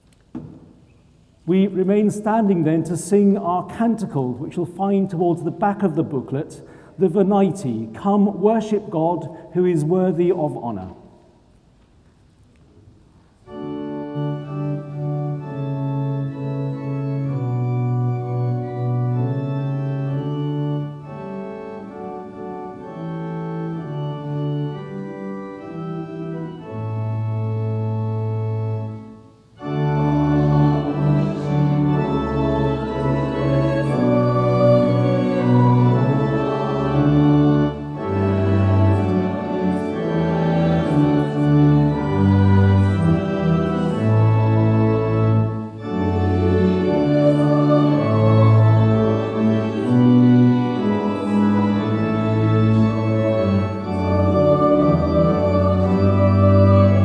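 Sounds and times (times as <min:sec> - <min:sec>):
organ playing hymn chords: 0:00.6 - 0:11.4, 0:13.1 - 0:57.0
congregation singing: 0:13.5 - 0:57.0.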